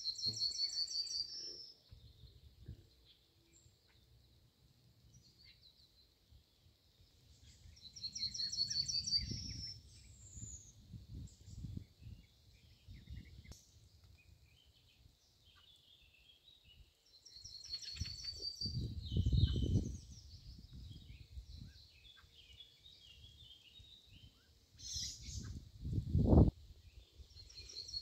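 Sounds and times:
songbird trilling: 0.0 - 1.9, 7.4 - 10.7, 17.2 - 20.3
birds calling faintly: 0.0 - 25.8, 26.4 - 28.0
wind gusts on microphone: 8.0 - 14.6, 17.9 - 22.0, 23.0 - 27.9.

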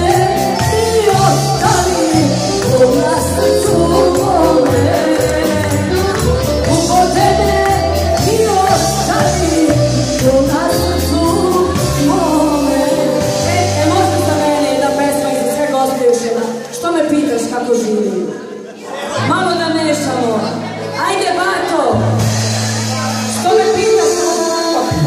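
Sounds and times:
electric guitar: 0.0 - 16.7
woman singing into a microphone: 0.0 - 18.3, 23.3 - 25.0.

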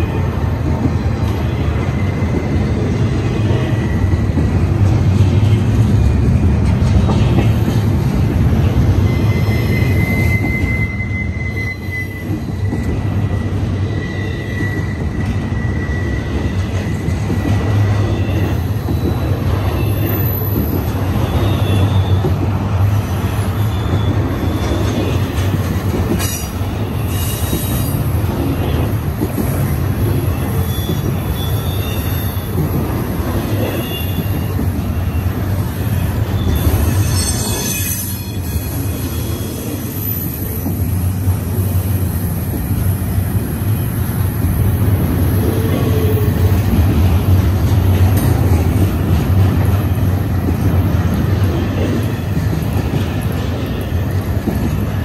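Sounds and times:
low rumble of train wheels on rail: 0.0 - 55.0
wheel flanges squealing: 8.6 - 41.1.

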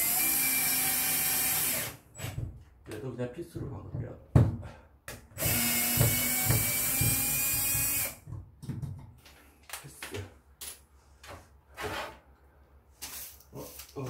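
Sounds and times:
cordless drill driving screw: 0.0 - 2.0, 5.4 - 8.2.

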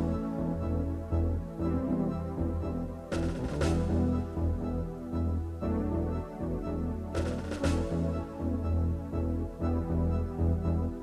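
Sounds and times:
background music with strong bass: 0.0 - 11.0.

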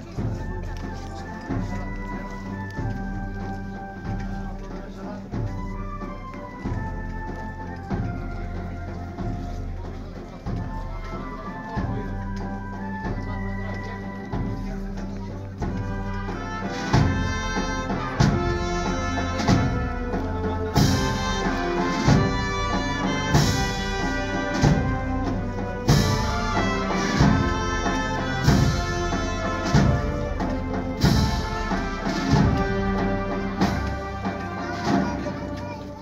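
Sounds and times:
wind band playing a march: 0.0 - 36.0
drum strokes: 14.3 - 35.7.

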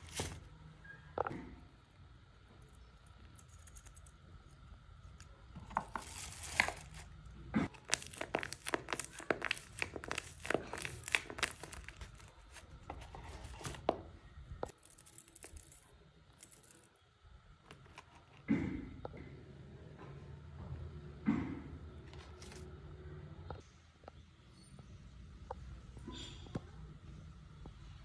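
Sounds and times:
paper squishy crinkling: 0.0 - 0.5, 5.7 - 14.0.

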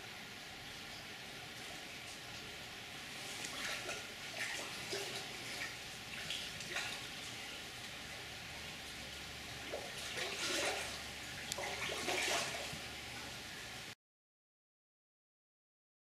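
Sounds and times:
stream water running: 0.0 - 14.0
fish splashing in water: 3.0 - 13.8.

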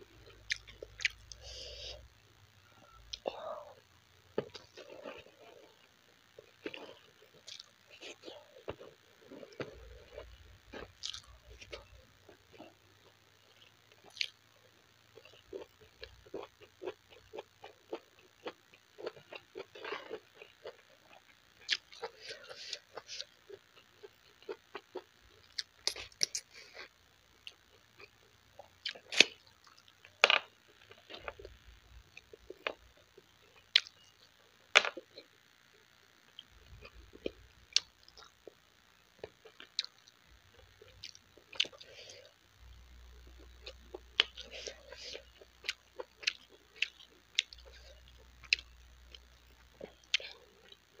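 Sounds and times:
chewing and lip smacks: 39.2 - 40.2.

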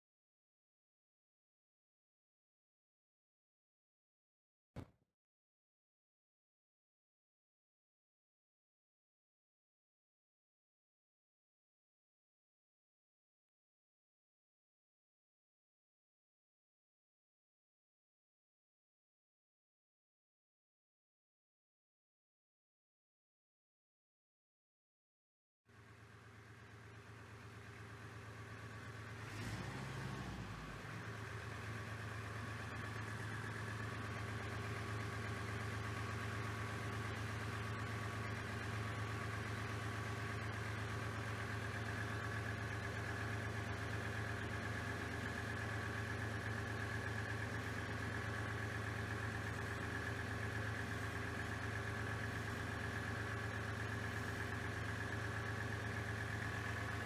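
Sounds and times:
tractor diesel engine idling: 25.7 - 57.0.

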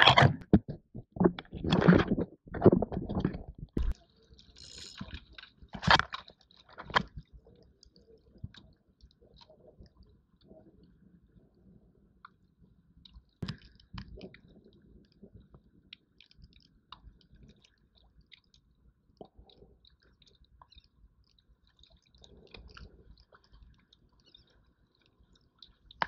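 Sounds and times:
fishing line clicking and rustling: 3.8 - 7.2.

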